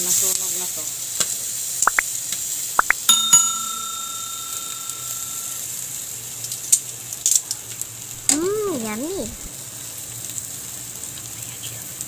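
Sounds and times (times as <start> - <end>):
chicken sizzling on grill: 0.0 - 1.8, 4.8 - 8.2, 8.9 - 12.0
quick rising blips: 2.8 - 3.1
bell ding: 2.8 - 5.6.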